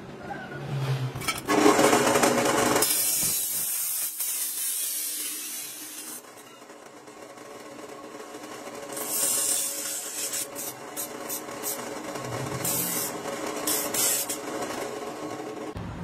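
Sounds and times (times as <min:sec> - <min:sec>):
cut-off wheel grinding metal pipe: 0:01.2 - 0:15.8
chop saw motor hum: 0:01.4 - 0:03.6, 0:05.2 - 0:15.8.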